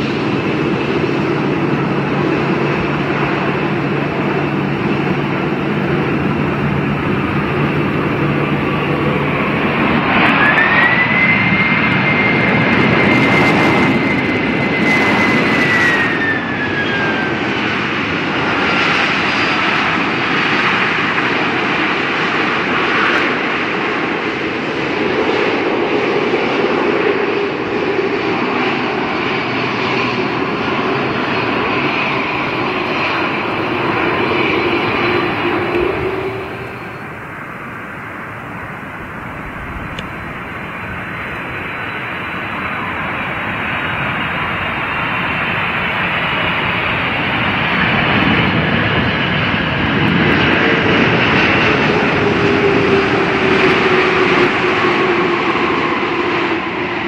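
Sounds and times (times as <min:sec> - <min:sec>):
high jet engine whine: 0:00.0 - 0:57.0
jet engine roar: 0:00.0 - 0:57.0.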